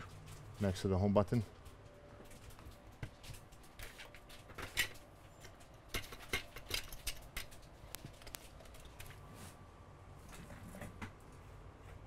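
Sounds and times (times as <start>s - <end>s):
small tools clicking and tapping: 1.6s - 9.2s.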